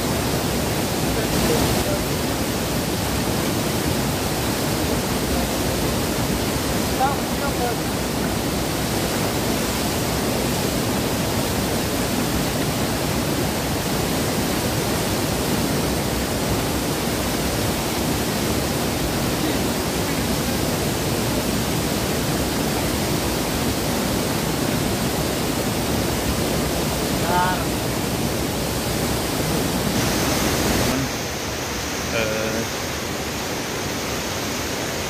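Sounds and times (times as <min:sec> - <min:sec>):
river rapids rushing: 0:00.0 - 0:35.0.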